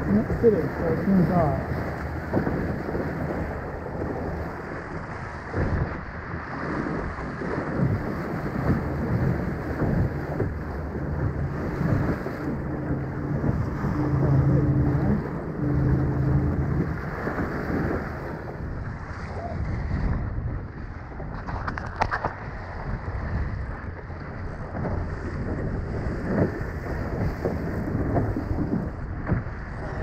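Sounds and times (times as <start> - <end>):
low hum: 0.0 - 5.5, 7.8 - 19.2
water rushing along a hull: 0.0 - 30.0
wind buffeting microphone: 0.0 - 30.0.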